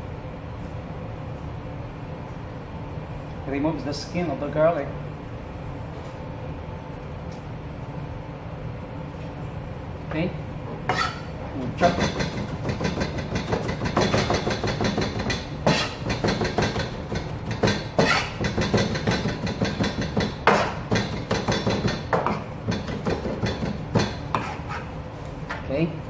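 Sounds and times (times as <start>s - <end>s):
steady low hum: 0.0s - 26.0s
knife chopping on plastic board: 11.8s - 24.8s.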